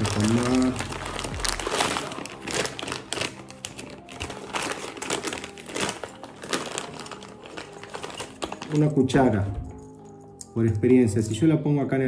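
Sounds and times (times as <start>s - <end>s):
plastic bags crinkling: 0.0s - 10.2s.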